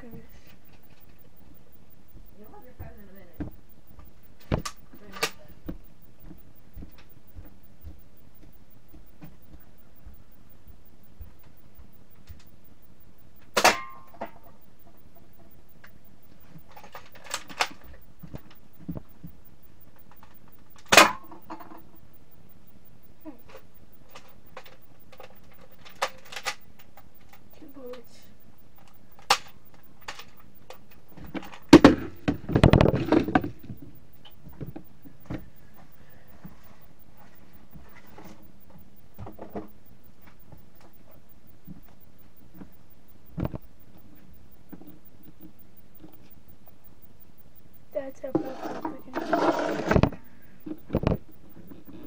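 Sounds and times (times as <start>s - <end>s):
toy blaster clicks: 24.1s - 28.1s.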